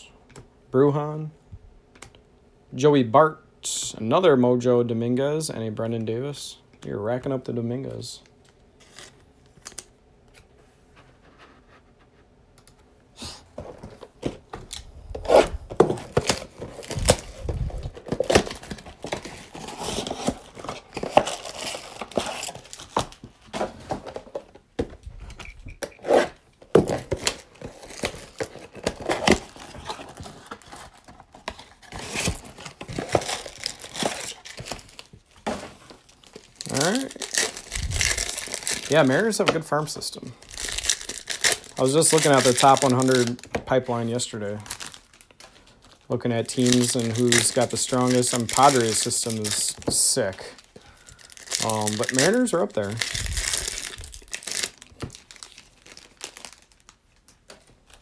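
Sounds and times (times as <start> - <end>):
box wrapping tearing: 15.2 - 24.2, 25.9 - 35.1, 36.3 - 39.2, 40.5 - 43.5, 46.6 - 56.7
foil packs crinkling: 15.4 - 24.5, 26.7 - 58.0.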